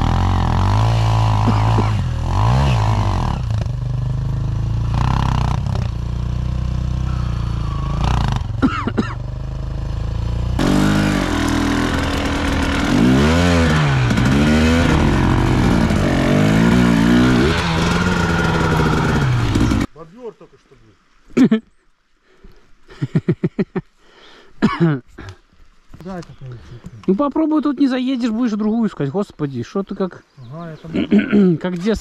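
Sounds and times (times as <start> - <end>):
motorcycle engine idling and revving: 0.0 - 19.9
motorcycle engine revving while ridden: 0.0 - 19.9.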